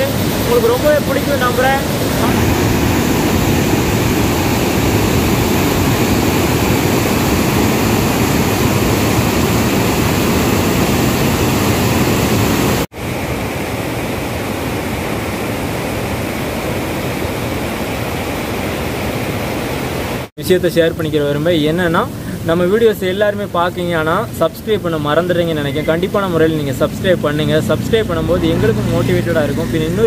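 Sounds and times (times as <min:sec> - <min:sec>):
river rapids rushing: 0:00.0 - 0:12.8.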